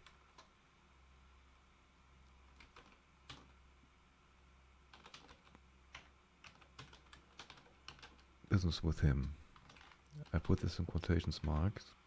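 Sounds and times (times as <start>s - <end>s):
keyboard typing clicks: 4.9s - 8.3s.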